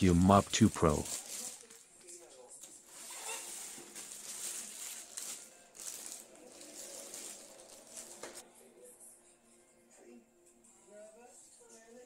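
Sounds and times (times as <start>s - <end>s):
plastic bag rustling and crinkling: 0.0s - 8.4s.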